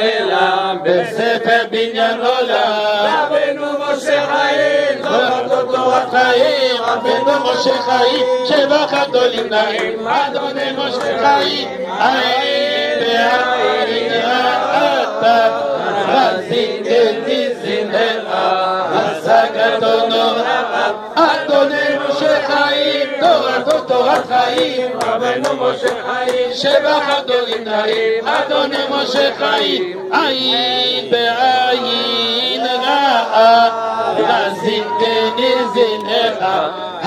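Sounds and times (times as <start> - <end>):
men singing together: 0.0 - 37.0
sharp claps: 9.2 - 10.1, 10.9 - 11.3, 23.6 - 28.7.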